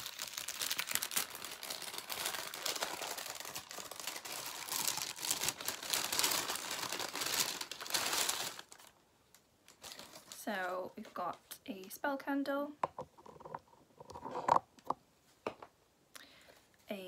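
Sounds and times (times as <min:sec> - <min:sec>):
paper bag crinkling and rustling: 0:00.0 - 0:09.0, 0:09.7 - 0:10.5.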